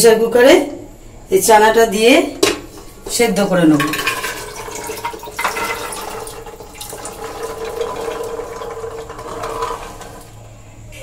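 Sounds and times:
chickpeas sliding into a pot: 7.0 - 10.4.

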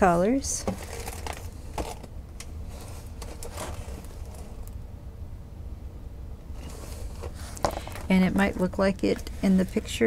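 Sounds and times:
low steady hum: 0.0 - 10.0
plastic film crinkling: 0.7 - 2.0.

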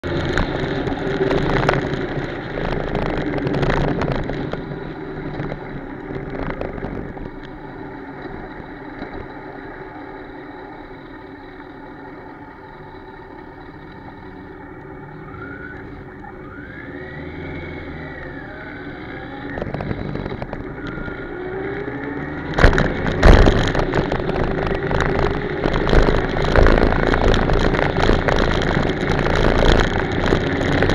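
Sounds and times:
wind noise on microphone: 0.0 - 7.5, 19.2 - 30.9
motorcycle engine running: 0.0 - 30.9.

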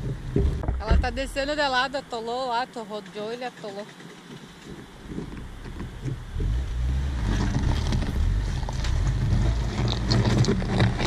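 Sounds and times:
tyres churning through gravel: 0.0 - 11.0
scattered ticks: 2.8 - 6.3.

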